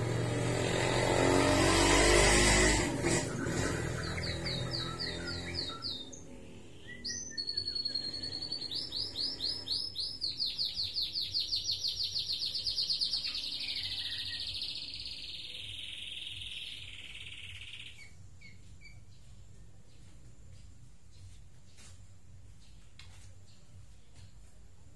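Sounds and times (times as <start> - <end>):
bird singing fast trill: 1.8 - 20.1.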